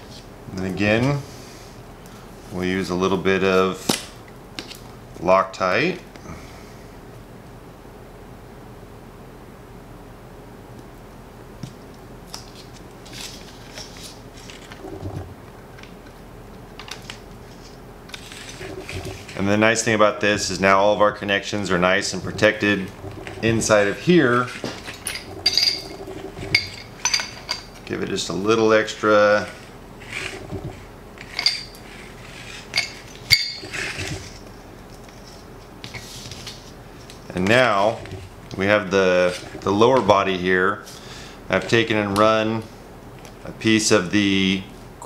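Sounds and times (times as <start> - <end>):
scraping on pipe threads: 18.1 - 19.6, 22.0 - 27.8, 29.5 - 34.4
metal pipe fittings clinking: 24.9 - 27.7.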